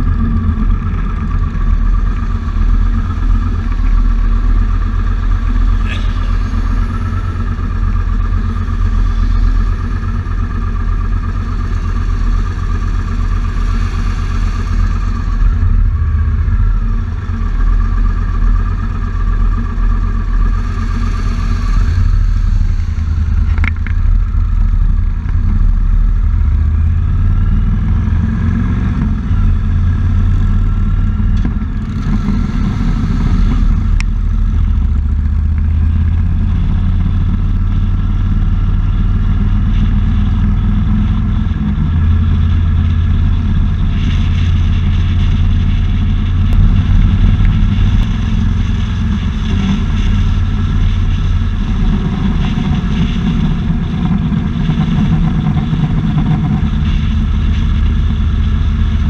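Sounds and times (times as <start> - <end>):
motorcycle engine idling and revving: 0.0 - 59.0.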